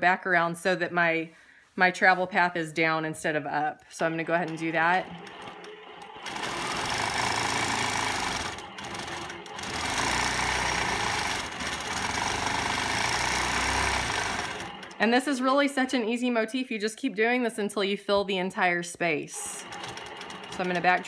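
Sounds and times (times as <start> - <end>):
quilting machine stitching: 4.0 - 15.4, 19.4 - 21.0.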